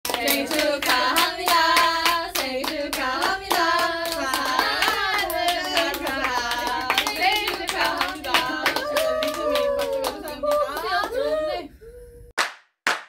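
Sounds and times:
women singing together: 0.1s - 11.7s
hands clapping in time: 12.4s - 13.0s.

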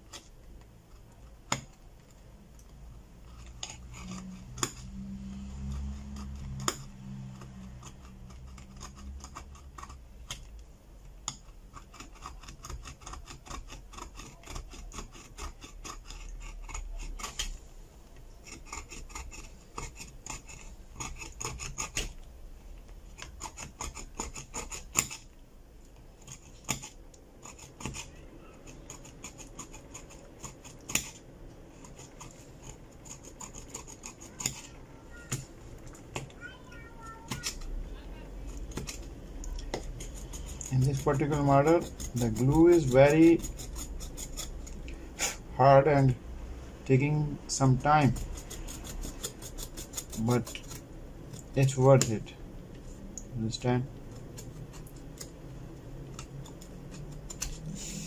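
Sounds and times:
metal scraper scratching metal: 3.1s - 10.5s, 11.2s - 17.6s, 18.3s - 22.2s, 23.1s - 25.4s, 26.2s - 37.8s, 38.4s - 45.4s, 47.2s - 52.2s, 56.1s - 58.0s.

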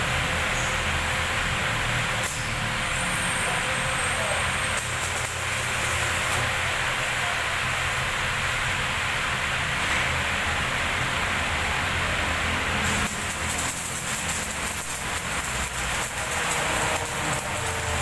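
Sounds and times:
steady hiss: 0.0s - 18.0s
welding arc crackling: 0.0s - 18.0s.

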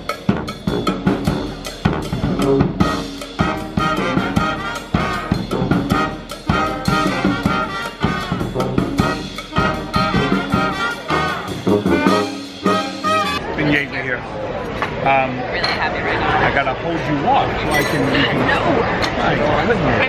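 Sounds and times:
steady drum beat: 0.0s - 13.4s
trombone: 0.0s - 13.5s
trumpet: 0.0s - 13.5s.

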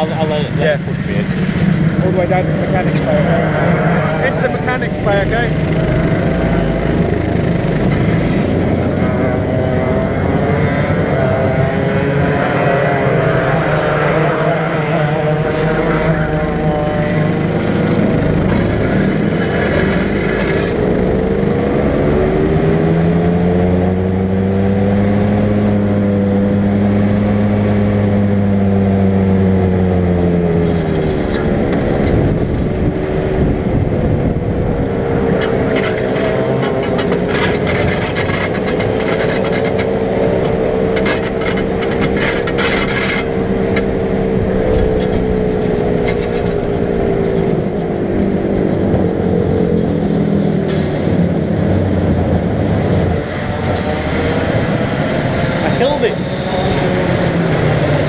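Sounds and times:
go-kart engine running: 0.0s - 58.0s
rattling: 35.3s - 47.9s.

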